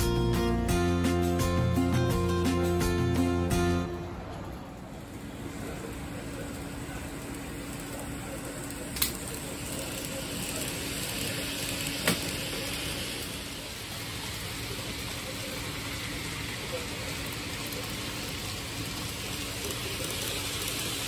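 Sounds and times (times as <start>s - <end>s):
model train wheels and motor hiss: 4.5s - 21.0s.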